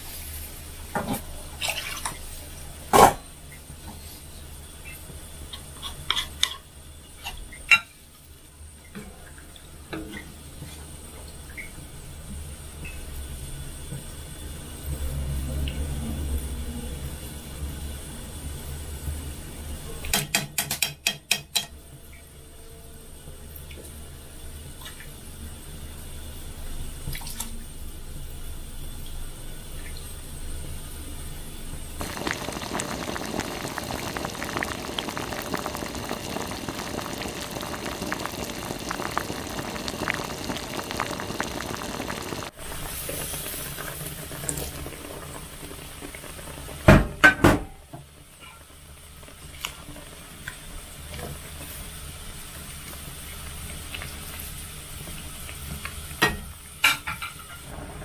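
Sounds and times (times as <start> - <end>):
tap water running: 32.0 - 48.2.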